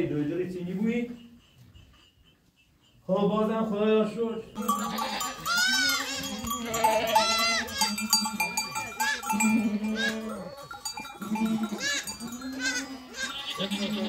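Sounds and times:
livestock bells clinking: 0:00.8 - 0:14.0
flock bleating: 0:04.6 - 0:14.0.

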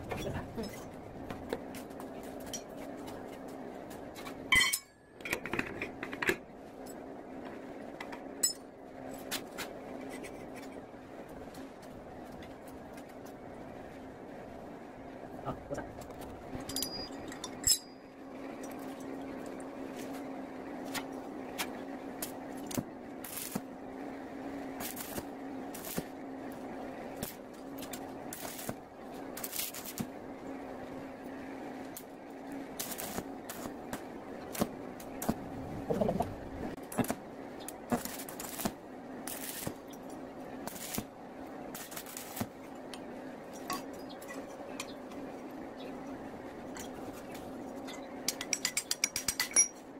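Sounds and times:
steady low hum: 0:00.0 - 0:49.9
welding arcs crackling: 0:20.8 - 0:23.8, 0:24.7 - 0:30.2, 0:31.9 - 0:42.8.

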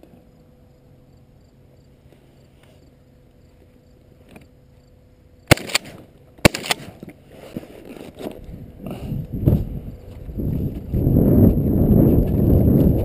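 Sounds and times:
shotgun shots: 0:05.5 - 0:07.0.

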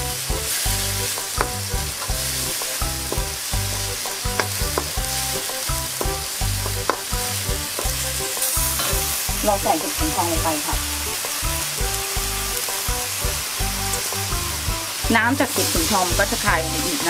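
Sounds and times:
meat sizzling in a wok: 0:00.0 - 0:17.0
spatula clicking against pan: 0:01.2 - 0:03.3, 0:04.3 - 0:05.1, 0:05.8 - 0:07.1.

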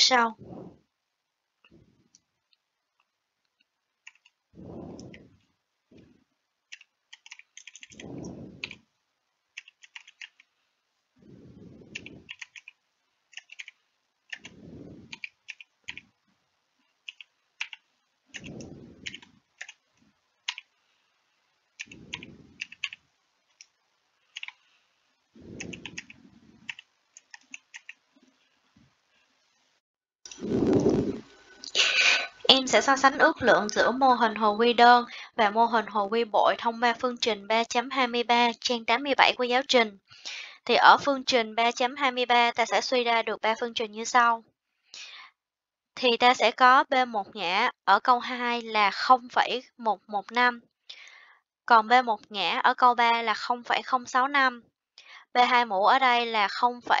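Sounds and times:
low muffled puffs: 0:00.4 - 0:01.0, 0:01.6 - 0:02.2, 0:04.6 - 0:06.3, 0:07.8 - 0:08.9, 0:11.2 - 0:12.5, 0:14.3 - 0:15.3, 0:18.4 - 0:20.2, 0:21.1 - 0:23.0, 0:24.3 - 0:26.8, 0:30.3 - 0:32.4.

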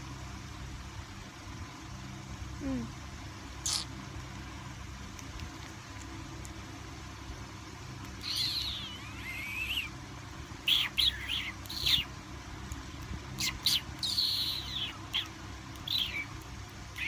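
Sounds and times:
infant monkey squeaking and chirping: 0:03.6 - 0:04.0, 0:08.2 - 0:09.9, 0:10.6 - 0:12.1, 0:13.4 - 0:17.0.

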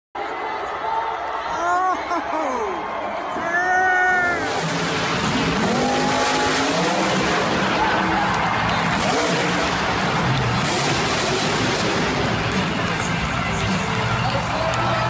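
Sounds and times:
truck engine revving: 0:04.2 - 0:15.0.

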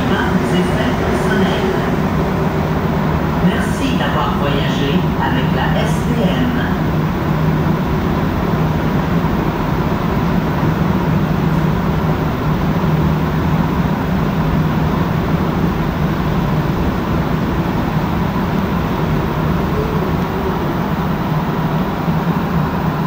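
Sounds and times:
train rumble: 0:00.0 - 0:23.0
low hum: 0:17.8 - 0:23.0.

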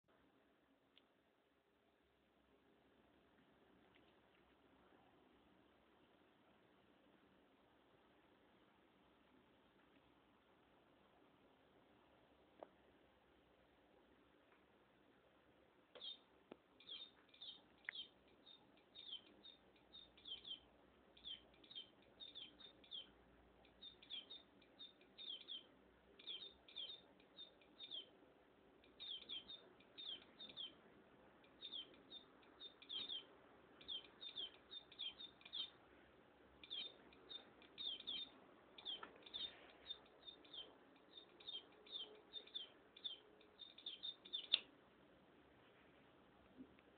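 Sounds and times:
electronic bird chirps: 0:16.0 - 0:28.1, 0:28.8 - 0:30.8, 0:31.5 - 0:35.8, 0:36.6 - 0:44.6.

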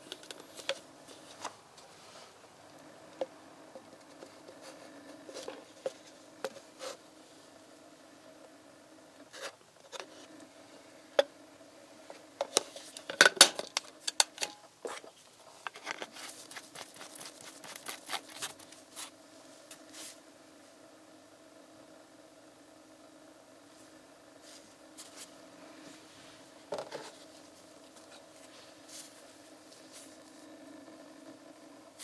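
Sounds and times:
faint steady hum: 0:00.0 - 0:32.0
plastic clattering: 0:12.4 - 0:17.1.

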